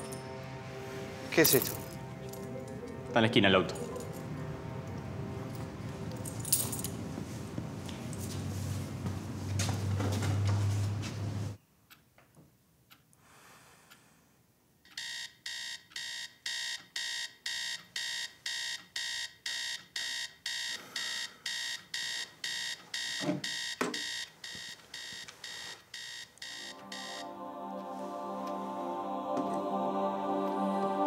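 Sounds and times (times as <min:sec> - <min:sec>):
alarm clock beeping: 0:14.9 - 0:27.3.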